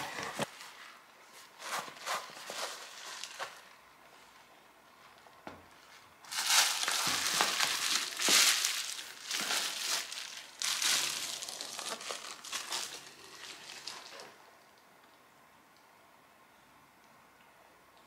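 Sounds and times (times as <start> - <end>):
bubble wrap crinkling: 0.0 - 3.8, 5.0 - 14.4.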